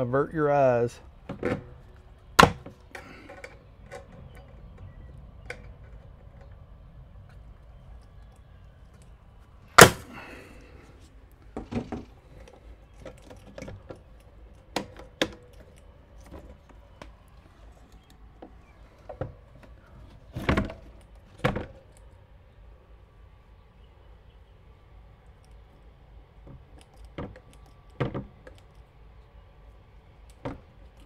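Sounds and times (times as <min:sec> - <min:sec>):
metal parts knocking on wood: 0:01.2 - 0:07.4.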